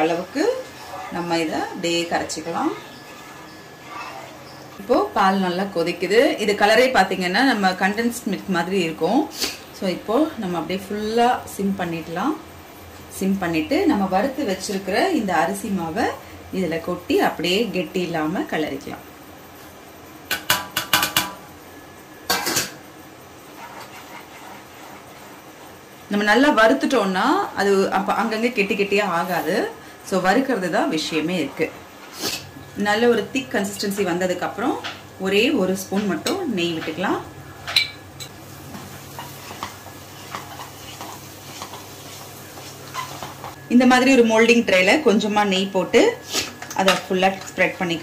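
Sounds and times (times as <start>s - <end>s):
wooden spatula scraping a pan: 2.4s - 3.8s, 23.5s - 25.8s, 38.7s - 43.6s.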